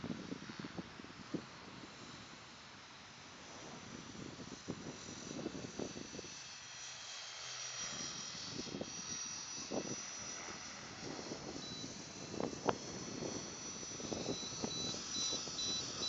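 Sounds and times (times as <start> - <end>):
small aircraft droning overhead: 0.0 - 16.0
thin high whine: 7.4 - 16.0.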